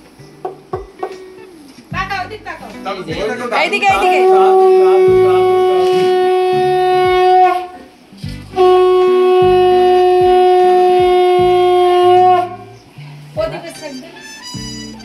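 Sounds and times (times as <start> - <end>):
conch shell blasts: 4.0 - 7.9, 8.6 - 12.8, 13.7 - 15.0.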